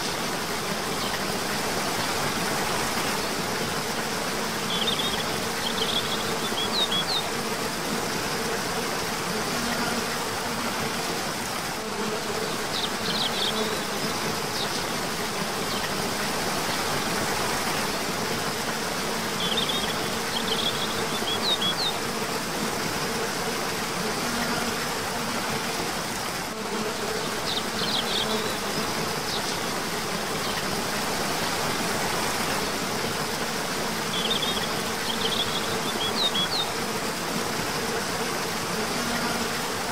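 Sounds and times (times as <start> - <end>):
waterfall rushing: 0.0 - 11.8, 12.5 - 26.6, 27.3 - 39.9
insects buzzing: 0.0 - 39.9
bird chirping: 34.1 - 36.7.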